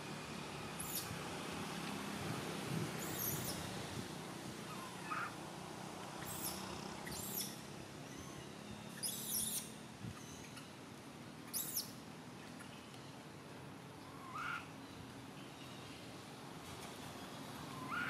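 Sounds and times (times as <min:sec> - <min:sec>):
baby monkey squealing: 0:00.8 - 0:01.1, 0:03.0 - 0:03.6, 0:06.2 - 0:08.3, 0:09.0 - 0:10.4, 0:11.5 - 0:11.8.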